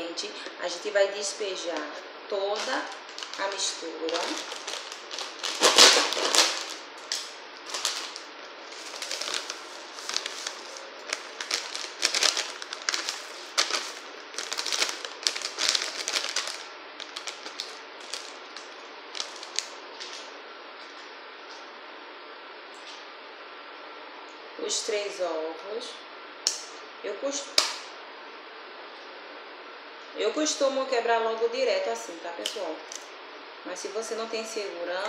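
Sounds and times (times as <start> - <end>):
packet crinkling and tearing: 2.6 - 20.3.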